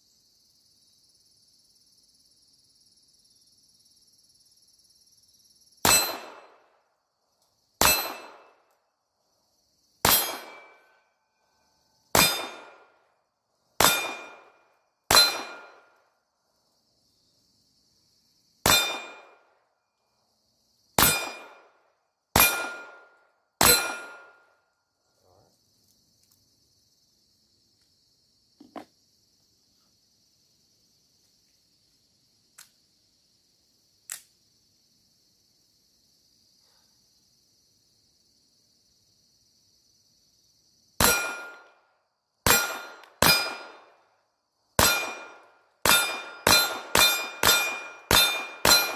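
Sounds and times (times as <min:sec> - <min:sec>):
pistol shots: 0:05.8 - 0:06.6, 0:07.8 - 0:08.6, 0:10.0 - 0:10.9, 0:12.1 - 0:12.9, 0:13.8 - 0:15.9, 0:18.6 - 0:19.4, 0:21.0 - 0:21.7, 0:22.4 - 0:24.4, 0:41.0 - 0:41.7, 0:42.5 - 0:43.9, 0:44.8 - 0:48.9
steel target ringing: 0:07.8 - 0:08.4, 0:13.8 - 0:14.4, 0:23.6 - 0:24.4, 0:41.0 - 0:41.7, 0:44.8 - 0:48.9.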